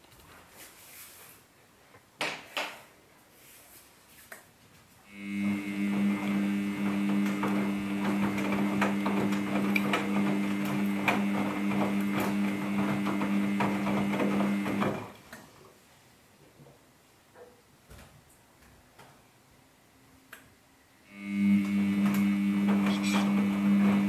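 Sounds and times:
washing machine motor hum and whine: 0:05.1 - 0:15.2, 0:21.1 - 0:24.0
wet laundry tumbling: 0:06.8 - 0:15.3.

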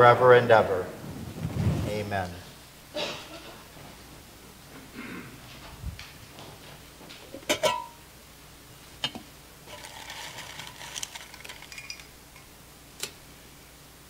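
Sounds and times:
rustling with light clinks: 0:09.7 - 0:12.1.

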